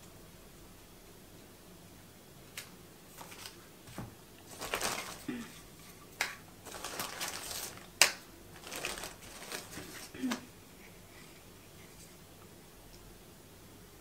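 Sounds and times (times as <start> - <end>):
plastic bag crinkling: 4.5 - 5.6, 6.6 - 10.4.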